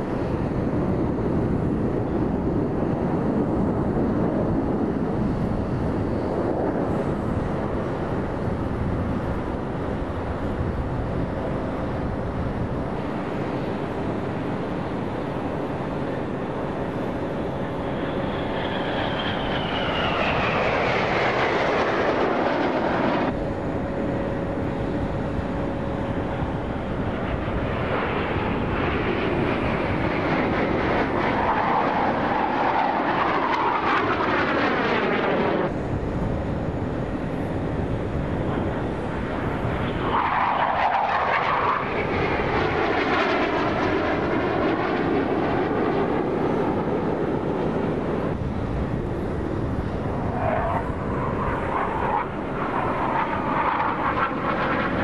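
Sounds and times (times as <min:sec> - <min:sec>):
jet engines flying past: 0:00.0 - 0:55.0.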